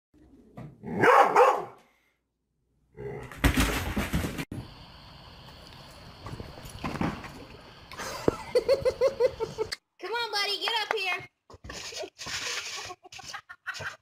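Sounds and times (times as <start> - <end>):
dog barking: 0.9 - 1.8
cat leaping out of cardboard box: 3.3 - 4.5.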